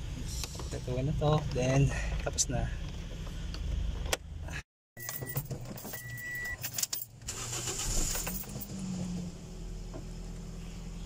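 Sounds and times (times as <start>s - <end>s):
car keys jangling: 5.0s - 8.8s.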